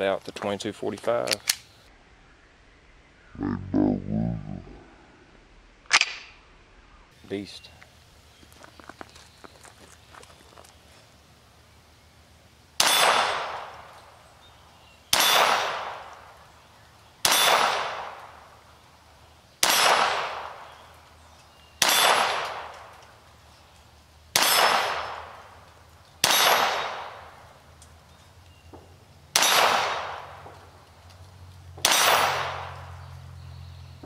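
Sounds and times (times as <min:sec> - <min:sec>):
pistol shots: 0:12.8 - 0:13.8, 0:15.1 - 0:16.1, 0:17.2 - 0:18.3, 0:19.6 - 0:20.7, 0:21.8 - 0:22.8, 0:24.4 - 0:25.4, 0:26.2 - 0:27.3, 0:29.3 - 0:30.5, 0:31.8 - 0:32.9.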